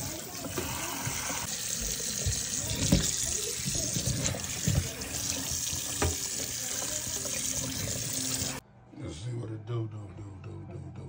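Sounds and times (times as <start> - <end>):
tap water splashing into bowl: 1.8 - 8.0.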